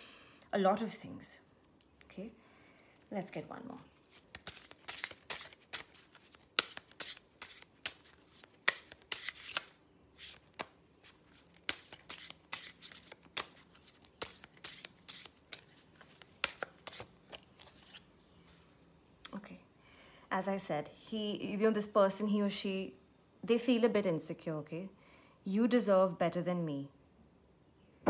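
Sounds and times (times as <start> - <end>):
cards being shuffled: 3.9 - 18.1.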